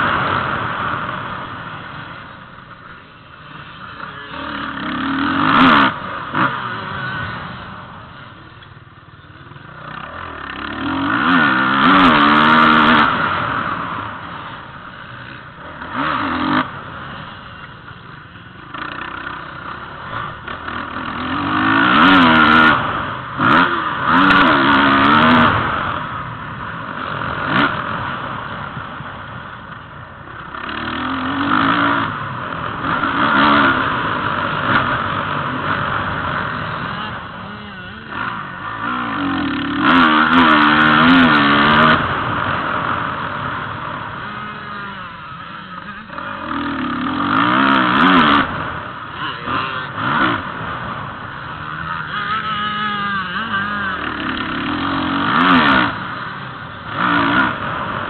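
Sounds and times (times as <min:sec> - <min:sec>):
motocross bike engine revving: 0:00.0 - 0:58.0.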